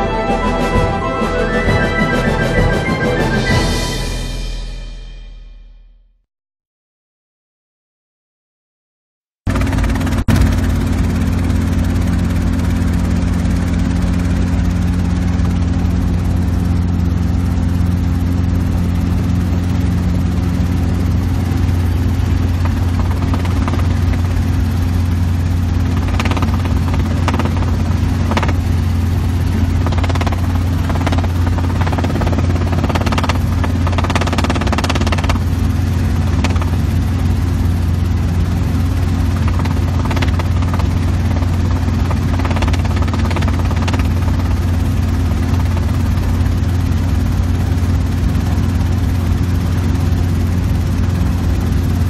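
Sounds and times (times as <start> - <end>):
helicopter rotor and engine drone: 0.0 - 4.7, 9.5 - 52.0
rushing noise: 0.0 - 5.8.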